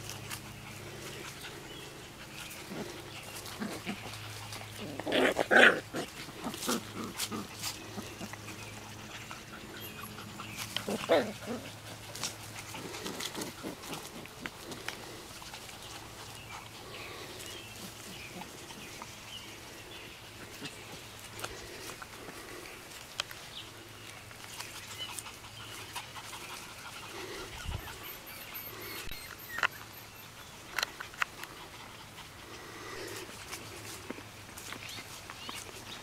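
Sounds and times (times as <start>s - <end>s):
rustling: 0.0s - 27.6s
puppies making small sounds: 0.0s - 36.0s.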